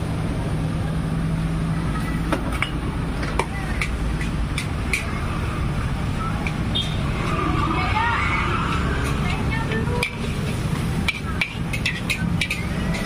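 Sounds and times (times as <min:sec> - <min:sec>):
gas burner roaring: 0:00.0 - 0:13.0
metal spatula clinking on wok: 0:09.3 - 0:13.0.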